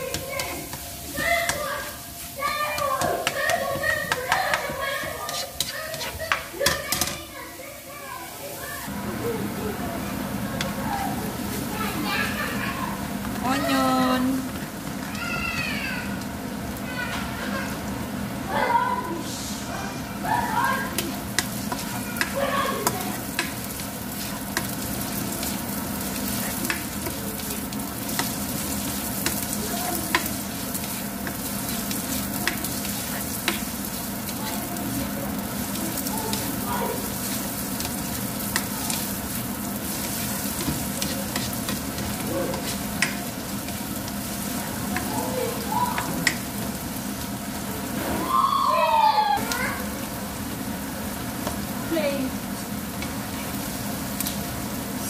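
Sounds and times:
onion sizzling in hot oil: 0.0 - 55.0
spatula tapping against pan: 2.7 - 7.2, 21.0 - 23.6.

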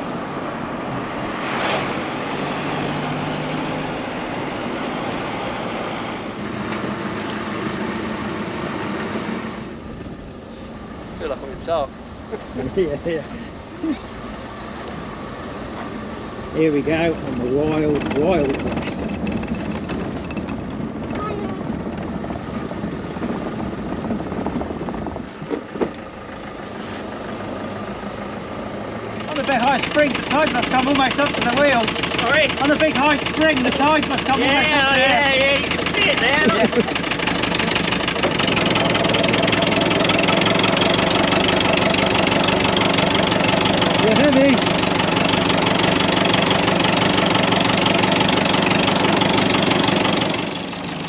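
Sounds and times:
car rushing past: 0.0 - 13.4
road and wind noise: 0.0 - 51.0
vehicle engine hum: 0.0 - 51.0.

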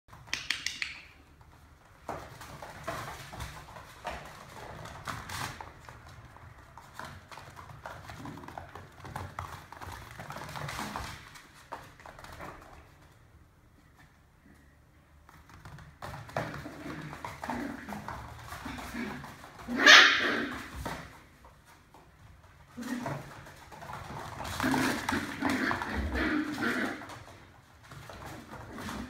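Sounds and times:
puppy claws clicking on floor: 0.1 - 13.2.

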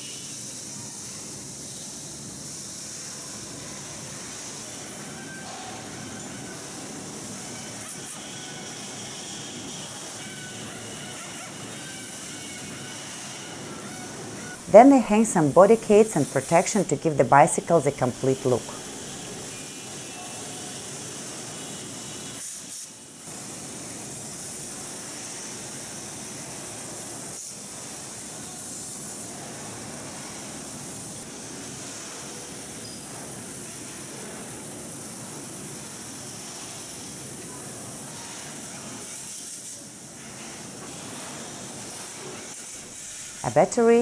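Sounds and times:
large wall fans running: 0.0 - 22.4.

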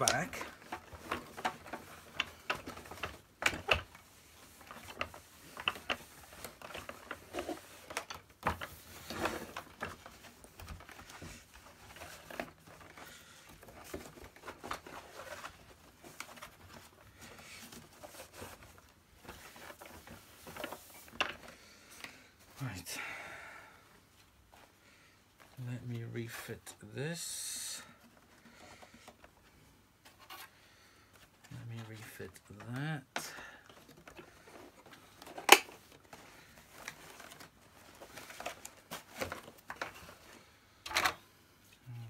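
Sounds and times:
plastic parts clicking and knocking: 0.0 - 22.1, 31.1 - 41.2
rubbing and rustling: 0.0 - 22.8, 24.0 - 40.8.

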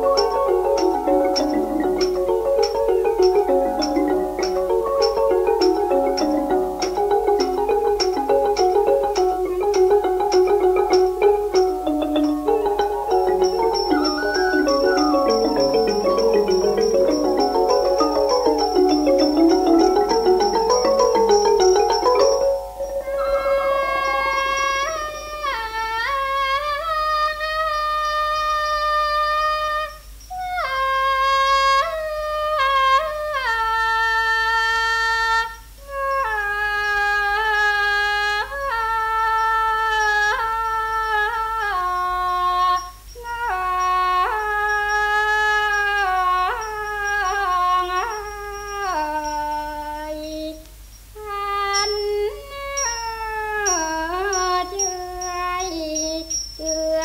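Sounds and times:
sliding instrumental melody: 0.0 - 25.8
woman singing classical vocal: 0.0 - 57.0.

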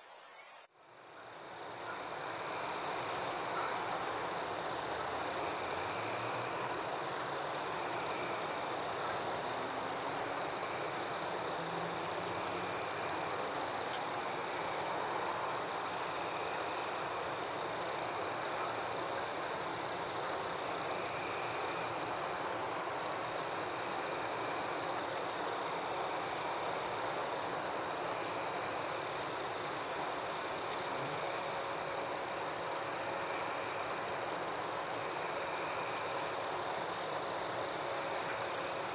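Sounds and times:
frogs calling: 0.0 - 0.7
insects trilling: 0.0 - 38.9.

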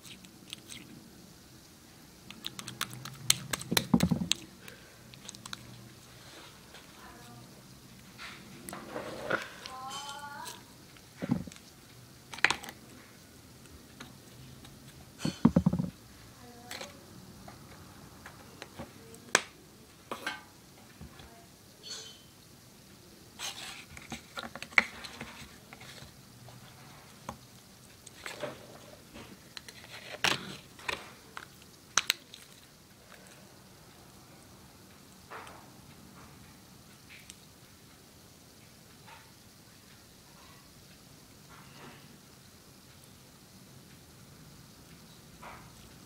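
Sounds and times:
plastic cup and supplies clicking on table: 2.3 - 4.4, 15.2 - 15.9.

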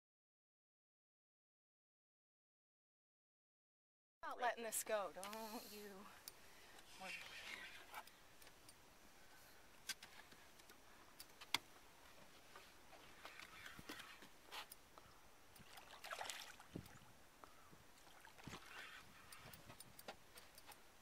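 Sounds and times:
faint clicks and knocks: 16.7 - 20.9.

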